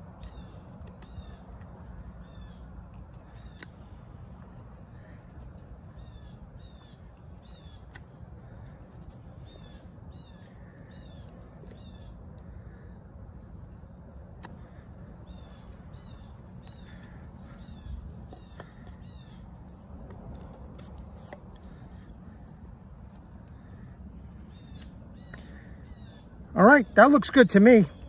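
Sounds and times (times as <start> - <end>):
bird chirping: 0.0 - 13.6, 14.4 - 28.0
knife shaving wood: 7.1 - 25.7.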